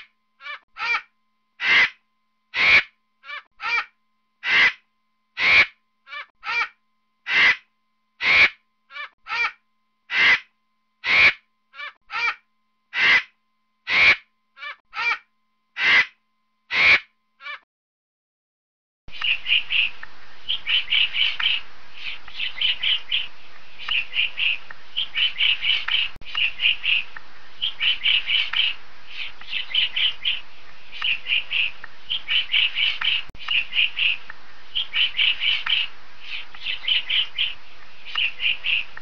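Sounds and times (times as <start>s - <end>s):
woodpecker calling: 2.6s - 3.8s, 8.2s - 9.5s, 10.1s - 12.3s, 19.1s - 39.0s
steady background noise: 19.1s - 39.0s.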